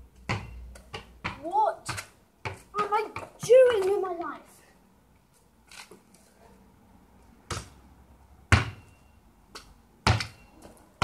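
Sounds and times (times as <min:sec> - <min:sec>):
basketball thudding: 0:00.2 - 0:03.9, 0:08.5 - 0:08.8, 0:10.0 - 0:10.4.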